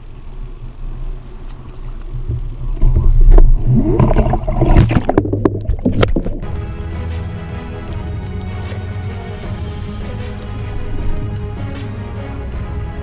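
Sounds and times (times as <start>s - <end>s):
sea water splashing and bubbling: 0.0s - 6.6s
low steady rumble: 0.0s - 6.8s.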